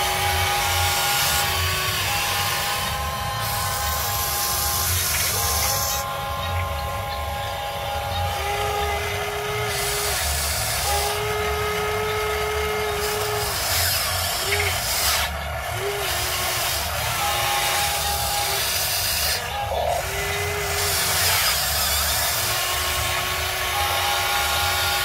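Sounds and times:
toy excavator motors whining: 0.0s - 25.0s.

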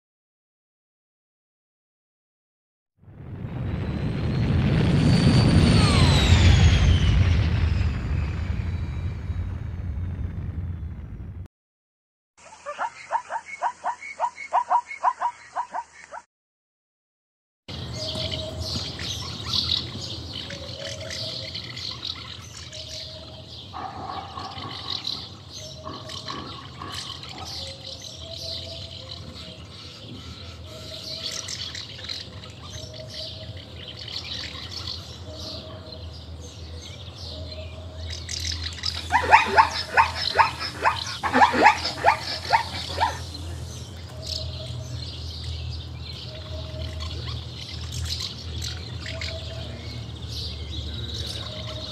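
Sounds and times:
birds chirping: 12.4s - 16.2s, 17.7s - 51.9s
rapid harsh bird calls: 12.4s - 16.2s, 17.7s - 36.1s, 38.0s - 51.9s.

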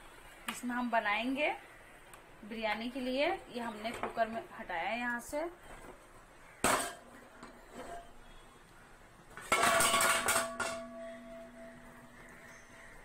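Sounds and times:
metal pots clanking: 6.6s - 8.3s, 9.4s - 12.3s.

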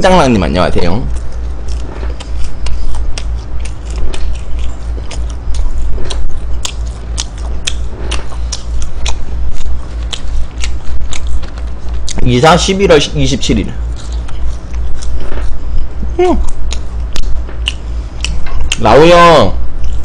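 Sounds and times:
steady low hum: 0.0s - 20.0s
chewing with wet mouth clicks: 1.1s - 12.2s, 13.9s - 15.6s, 16.4s - 18.9s.

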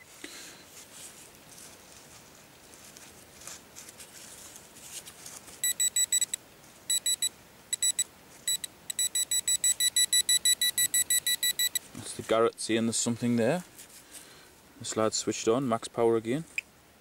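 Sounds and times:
pinpointer beeping: 5.6s - 11.8s.

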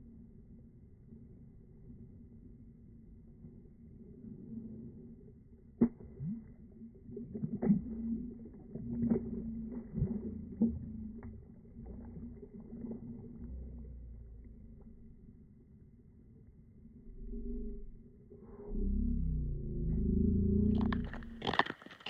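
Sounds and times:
low slowed-down rumble: 0.0s - 21.6s
water and slush sloshing: 7.0s - 13.8s, 20.8s - 22.0s.

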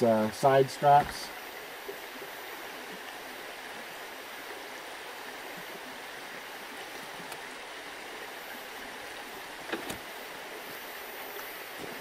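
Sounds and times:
creek running: 0.0s - 12.0s.

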